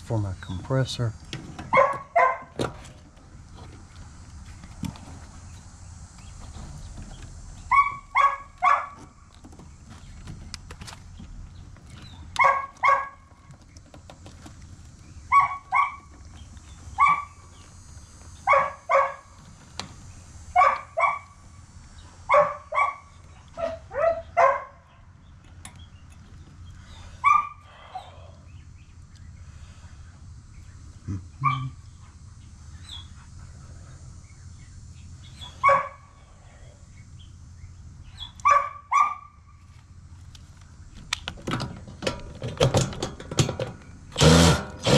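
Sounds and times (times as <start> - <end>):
steady low hum: 0.0 - 44.9
dogs barking: 1.7 - 2.6, 7.6 - 9.2, 12.1 - 13.5, 15.2 - 17.6, 18.4 - 19.4, 20.4 - 21.5, 22.2 - 25.1, 27.2 - 28.4, 31.3 - 33.6, 35.3 - 36.2, 38.0 - 39.5.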